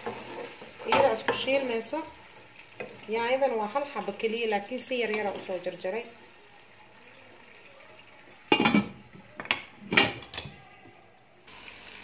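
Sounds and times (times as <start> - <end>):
wooden spatula scraping pot: 0.0 - 1.6
vegetables sizzling in oil: 0.0 - 10.4, 11.5 - 12.0.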